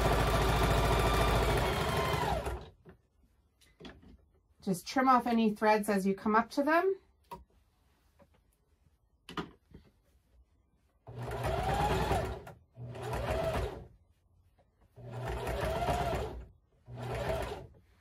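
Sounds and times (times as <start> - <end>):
sewing machine stitching: 0.0 - 2.8, 11.1 - 13.9, 15.0 - 17.8.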